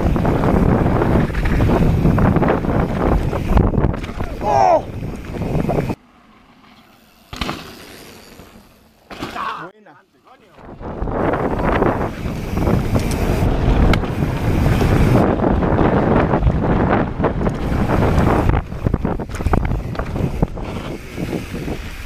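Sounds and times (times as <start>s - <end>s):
wind on microphone: 0.0s - 6.0s, 10.6s - 22.0s
bike clicks and rattles: 0.0s - 9.6s, 10.6s - 22.0s
tyres rumbling over dirt: 10.7s - 22.0s.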